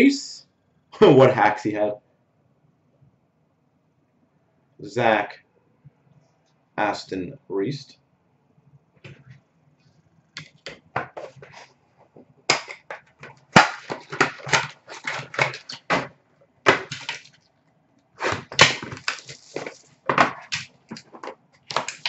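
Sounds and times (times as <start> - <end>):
plastic wrapping crinkling: 12.6 - 16.1, 16.7 - 17.5, 18.2 - 22.0.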